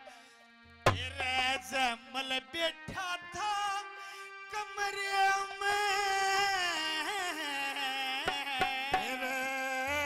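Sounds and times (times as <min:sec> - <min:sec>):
man singing long phrase: 0:01.0 - 0:10.0.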